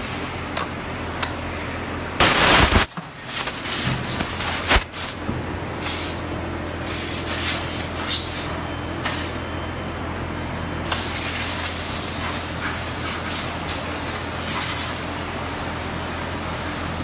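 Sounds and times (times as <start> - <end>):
machine humming: 0.0 - 2.9
air hissing bursts: 2.2 - 5.2.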